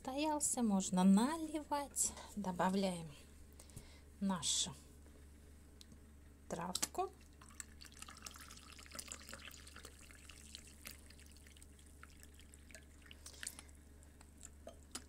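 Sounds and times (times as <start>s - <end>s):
liquid dripping: 6.8s - 15.0s
tea pouring into a mug: 7.2s - 13.7s.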